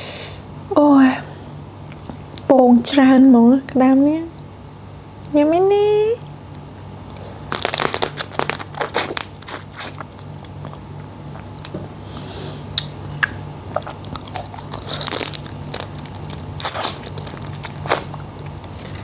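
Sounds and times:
crab shell crunching: 0:07.4 - 0:11.7, 0:13.1 - 0:19.0
wet sucking at crab meat: 0:13.2 - 0:18.2.

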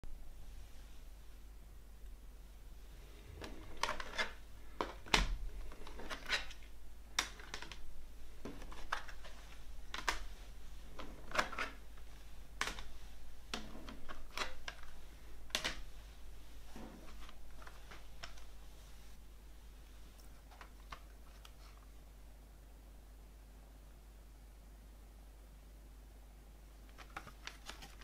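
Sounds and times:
plastic cases clacking together: 0:03.4 - 0:10.3, 0:10.9 - 0:15.9, 0:26.9 - 0:28.0
cases scraping on wood: 0:16.6 - 0:18.4.

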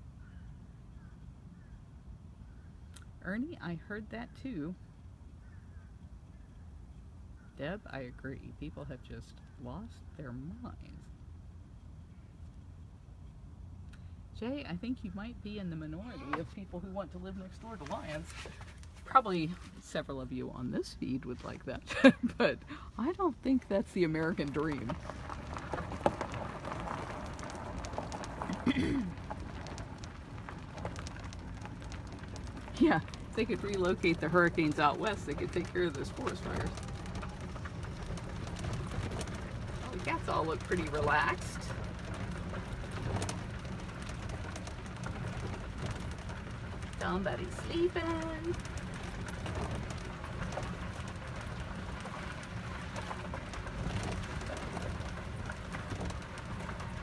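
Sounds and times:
tyres crunching on gravel: 0:15.9 - 0:57.0
light clicks and crackles: 0:17.6 - 0:19.8, 0:24.0 - 0:57.0.

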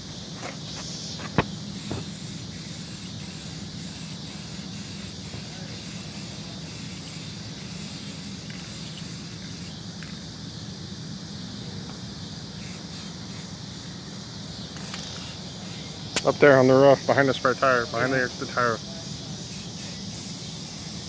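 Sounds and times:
spray paint can hissing: 0:00.6 - 0:09.8, 0:12.6 - 0:13.5, 0:14.8 - 0:15.8, 0:19.4 - 0:21.0
sharp click: 0:14.8 - 0:15.2.

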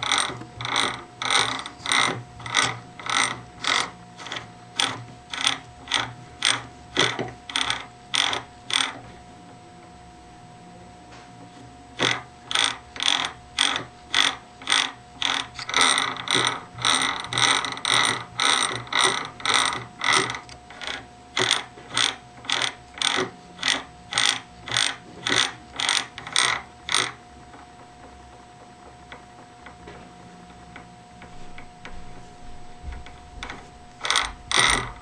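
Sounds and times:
gear teeth rattling: 0:00.0 - 0:09.0, 0:12.0 - 0:27.2, 0:33.0 - 0:35.0.

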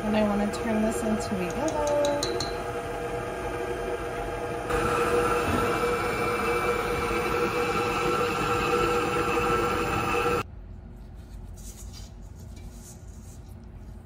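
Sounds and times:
beater churning dry mixture: 0:00.0 - 0:10.4
stand mixer motor whining: 0:00.1 - 0:10.4.

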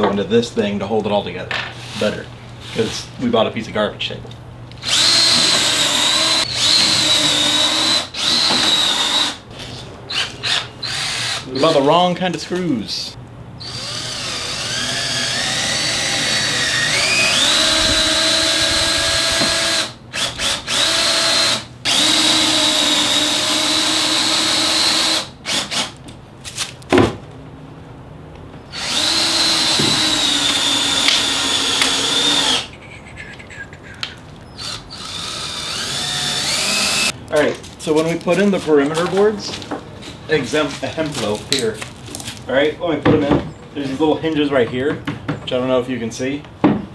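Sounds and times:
cordless drill whining: 0:04.8 - 0:09.4, 0:10.1 - 0:11.8, 0:13.6 - 0:26.0, 0:28.7 - 0:32.7, 0:34.5 - 0:37.1.

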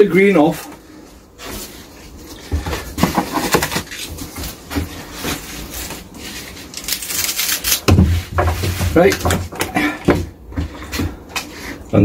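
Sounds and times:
leaves and stalks rustling: 0:03.7 - 0:09.1.

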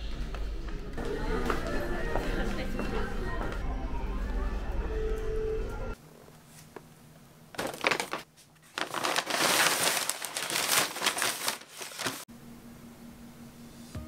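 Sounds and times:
paper bag rustling: 0:07.6 - 0:12.3.

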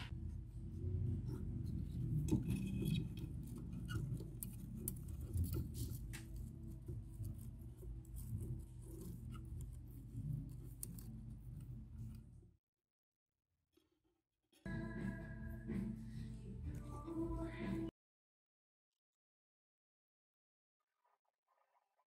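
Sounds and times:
steady low hum: 0:00.0 - 0:12.6.

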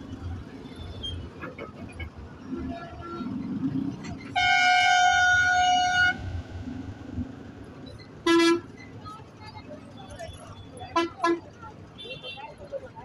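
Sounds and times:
traffic noise: 0:00.0 - 0:13.0
bus horn blast: 0:04.3 - 0:06.3, 0:08.2 - 0:08.7, 0:10.9 - 0:12.4.

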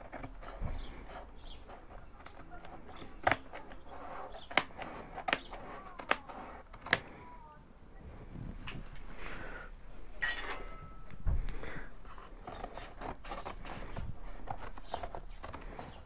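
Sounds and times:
card rustling: 0:00.0 - 0:07.2, 0:11.4 - 0:16.0
scissors snipping cardboard: 0:00.0 - 0:07.2, 0:12.1 - 0:16.0.

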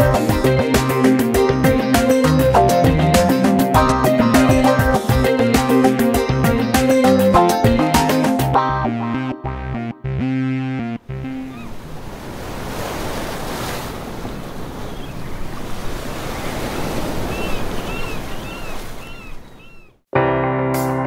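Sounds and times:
music track: 0:00.0 - 0:11.5, 0:20.2 - 0:21.0
ocean surf washing: 0:11.1 - 0:19.9.

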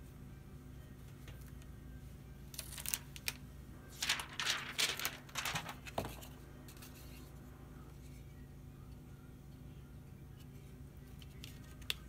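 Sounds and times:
plastic film peeling and crinkling: 0:02.5 - 0:03.4, 0:04.0 - 0:06.2.

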